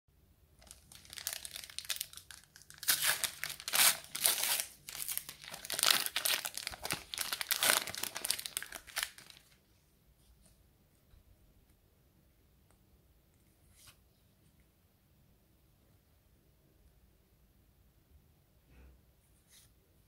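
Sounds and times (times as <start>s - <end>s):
foil wrapper crinkling: 0.6s - 9.6s
wrapper being torn open: 0.6s - 9.6s.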